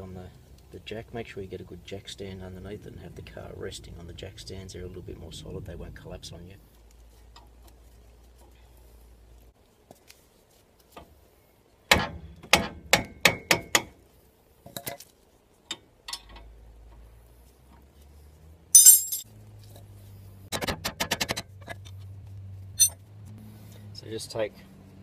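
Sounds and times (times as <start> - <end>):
wrench clinking on metal: 18.8 - 19.2.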